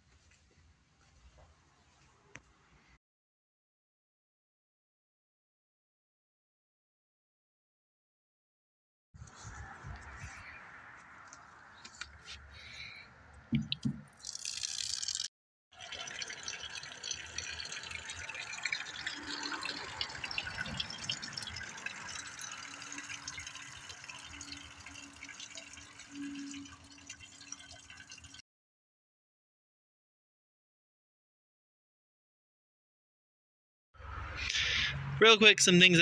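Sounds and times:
water trickling from a spigot: 0:13.6 - 0:28.4.

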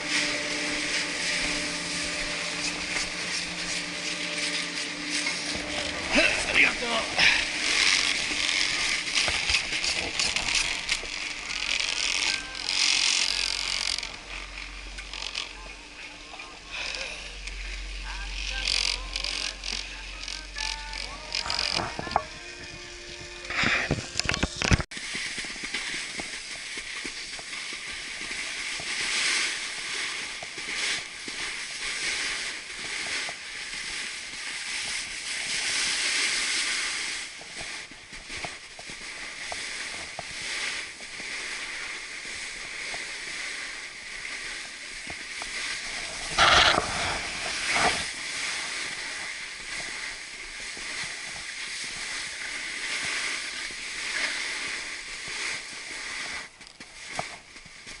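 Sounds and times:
snowboard scraping over snow: 0:00.0 - 0:58.0
loud scrapes or thumps: 0:45.9 - 0:48.2.

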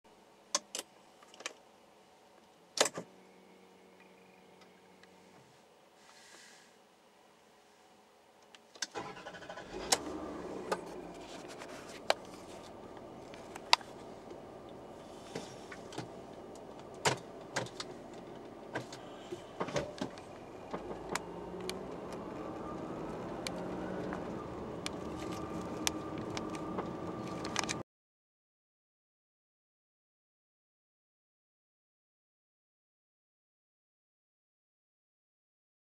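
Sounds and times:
car engine starting and running: 0:08.8 - 0:27.8
sharp clicks: 0:20.0 - 0:27.8.

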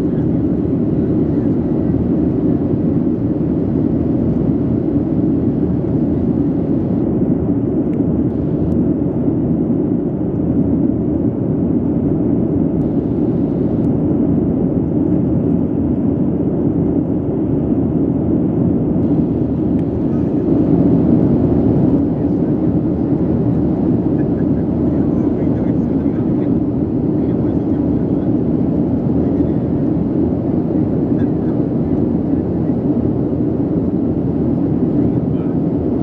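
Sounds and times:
jet engine rumble: 0:00.0 - 0:36.0
air rushing over fuselage: 0:12.8 - 0:14.2, 0:19.0 - 0:24.8.

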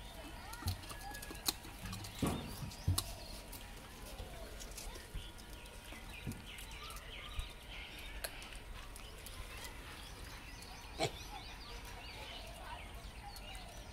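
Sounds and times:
small birds chirping: 0:00.0 - 0:13.9.

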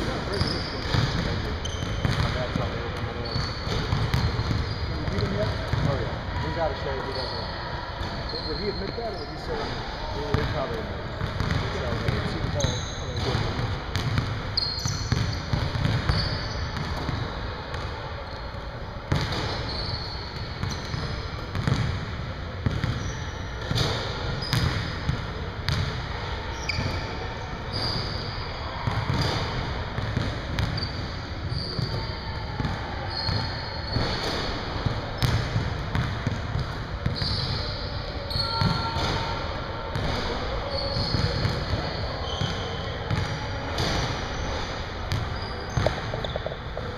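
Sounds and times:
low hum of hall: 0:00.0 - 0:46.9
basketballs bouncing on hardwood floor: 0:00.4 - 0:06.0, 0:11.2 - 0:17.8, 0:19.1 - 0:19.6, 0:20.6 - 0:22.0, 0:22.6 - 0:24.9, 0:25.7 - 0:25.9, 0:28.8 - 0:29.4, 0:32.6 - 0:37.4, 0:38.5 - 0:39.2, 0:43.1 - 0:44.0, 0:45.1 - 0:46.9
short high squeaks: 0:03.2 - 0:05.0, 0:14.5 - 0:16.7, 0:19.4 - 0:21.3, 0:37.1 - 0:39.3.

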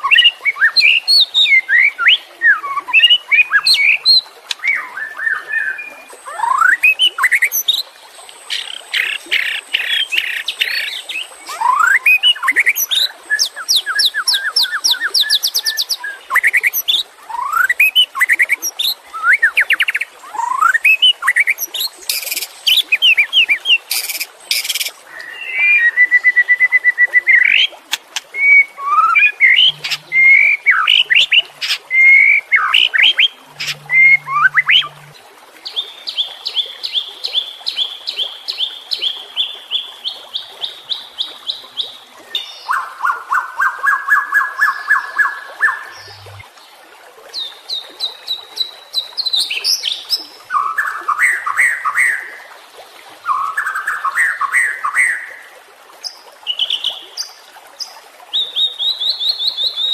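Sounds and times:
songbird singing: 0:00.0 - 0:07.8, 0:08.5 - 0:27.7, 0:28.3 - 0:46.4.

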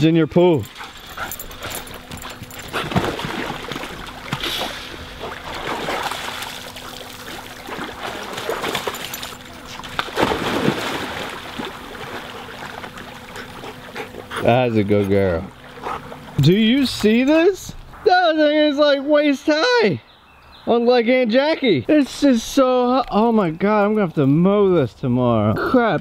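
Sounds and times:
dogs splashing in water: 0:00.6 - 0:17.3.

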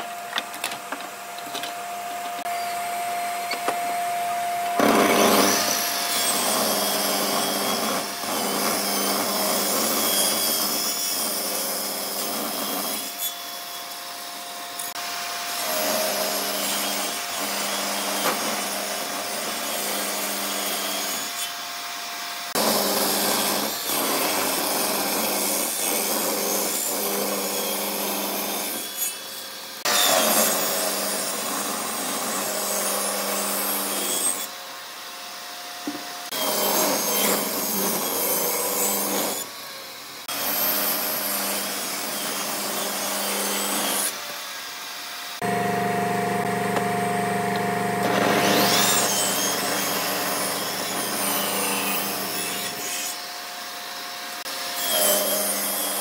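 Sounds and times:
saw ripping wooden boards: 0:04.8 - 0:13.3, 0:15.6 - 0:21.4, 0:22.5 - 0:34.5, 0:48.0 - 0:53.3
table saw motor humming: 0:45.3 - 0:53.3.

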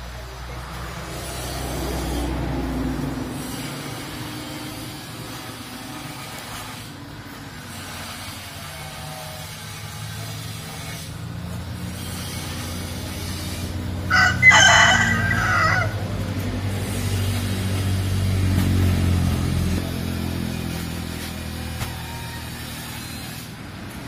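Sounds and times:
rooster crowing: 0:14.0 - 0:16.3, 0:21.5 - 0:23.2.

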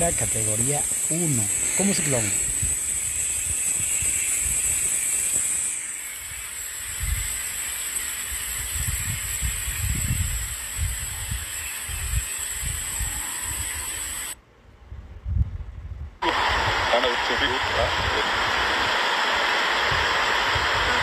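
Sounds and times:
wind gusts buffeting microphone: 0:00.0 - 0:04.9, 0:08.5 - 0:13.6, 0:14.9 - 0:19.0, 0:19.8 - 0:21.0
steady high hiss: 0:00.0 - 0:14.4, 0:16.2 - 0:21.0.

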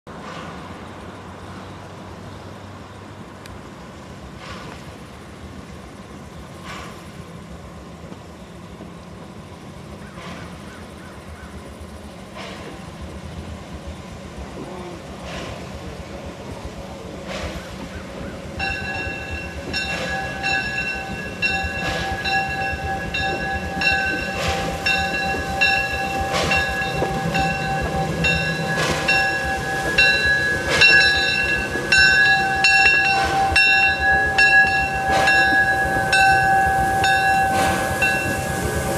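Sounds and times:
steam exhaust chuffs: 0:10.0 - 0:38.9
locomotive bell ringing: 0:18.6 - 0:38.9.

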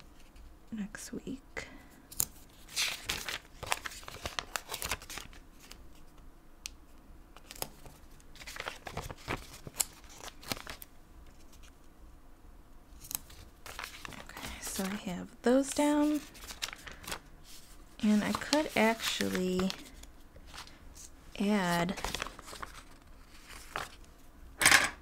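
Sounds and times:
paper rustling and crinkling: 0:02.3 - 0:06.1, 0:07.4 - 0:11.7, 0:13.0 - 0:24.3
notebook page turning: 0:02.6 - 0:05.8, 0:07.4 - 0:11.7, 0:13.0 - 0:15.1, 0:15.8 - 0:20.8, 0:21.7 - 0:24.1.

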